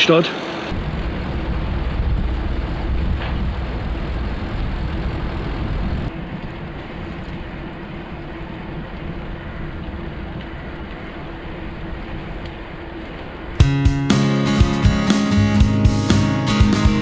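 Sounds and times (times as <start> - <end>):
tyre and road noise: 0.0 - 17.0
wind rumbling on microphone: 0.7 - 13.6.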